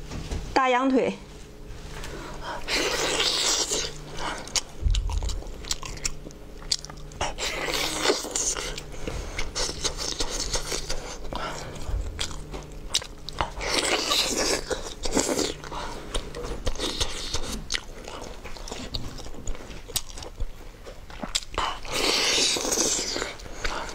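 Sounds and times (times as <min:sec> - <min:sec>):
person biting and chewing meat: 0:02.3 - 0:23.9
sticky chewing clicks: 0:03.2 - 0:11.0, 0:11.7 - 0:21.9
dull low thumps: 0:04.8 - 0:05.5.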